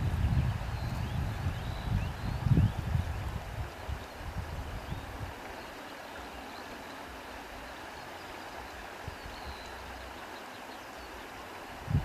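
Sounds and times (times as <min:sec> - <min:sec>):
steady rushing outdoor ambience: 0:02.9 - 0:12.0.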